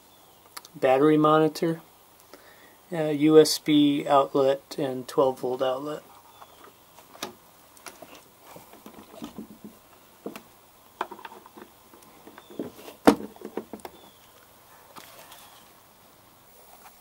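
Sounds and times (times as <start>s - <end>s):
wooden panel clicks and knocks: 8.8s - 14.0s.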